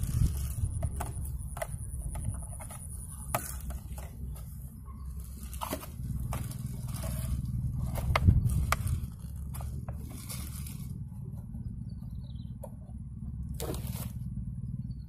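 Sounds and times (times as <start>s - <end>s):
plastic bottle crackling and clicking: 0.0s - 4.6s, 5.2s - 10.9s
steady low rumble: 0.0s - 15.0s.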